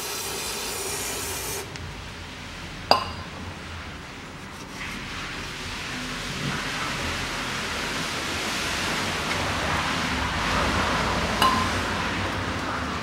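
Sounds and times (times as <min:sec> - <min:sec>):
aerosol spray hissing: 0:00.0 - 0:01.7
sharp metallic clink: 0:11.4 - 0:11.8.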